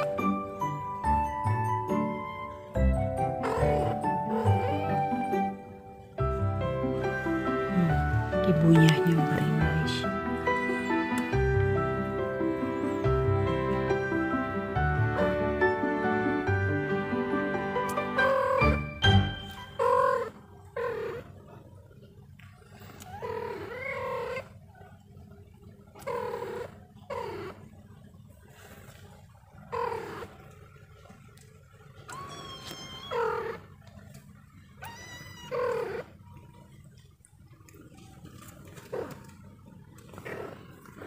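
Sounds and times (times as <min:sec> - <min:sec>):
background music: 0:00.0 - 0:20.3
kittens mewing: 0:03.4 - 0:05.5, 0:18.2 - 0:18.8, 0:19.7 - 0:21.4, 0:22.7 - 0:24.9, 0:26.0 - 0:27.7, 0:29.6 - 0:30.5, 0:32.0 - 0:33.8, 0:34.7 - 0:36.3.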